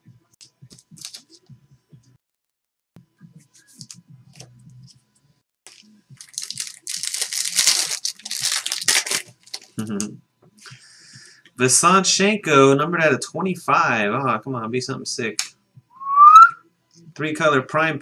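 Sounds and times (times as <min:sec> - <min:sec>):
trading cards clicking and rustling: 0:00.7 - 0:01.4, 0:03.6 - 0:05.0
foil wrapper crinkling: 0:01.0 - 0:01.3, 0:05.7 - 0:10.0.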